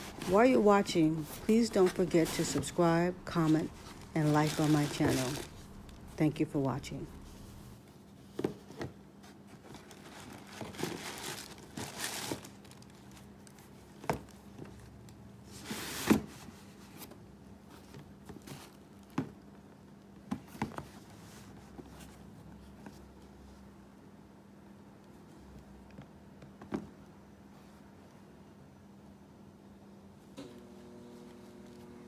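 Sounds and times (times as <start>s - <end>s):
cardboard box rustling and crinkling: 1.2s - 6.0s, 9.5s - 13.2s.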